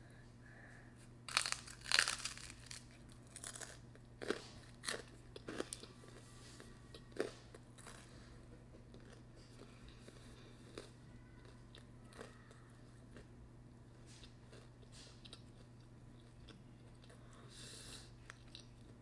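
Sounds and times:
crunching bites and chewing: 1.3 - 6.3, 6.9 - 13.3, 14.1 - 17.2.

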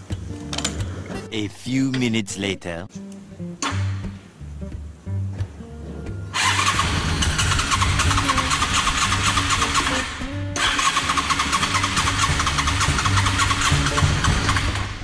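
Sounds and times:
motorcycle starter cranking: 6.4 - 15.0.

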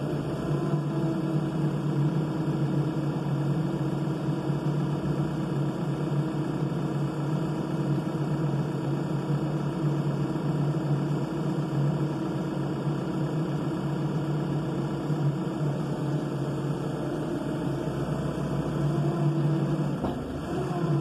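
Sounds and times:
diesel engine idling: 11.7 - 21.0.

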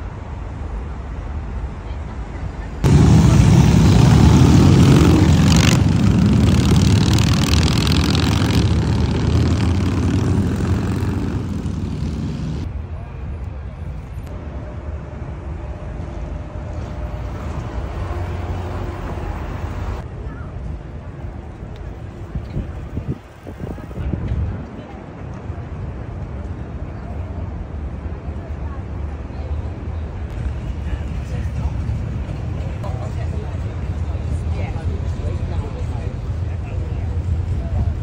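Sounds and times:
city street traffic: 0.0 - 38.0
motorcycle engine passing by: 2.9 - 12.7.

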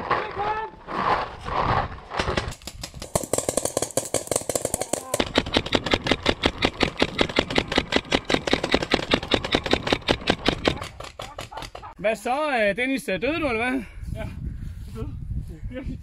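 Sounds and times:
paintball markers firing rapidly: 2.2 - 11.9.

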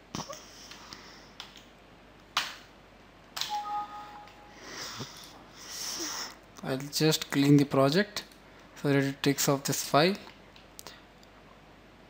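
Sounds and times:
two-note computer alert chime: 3.5 - 4.9.

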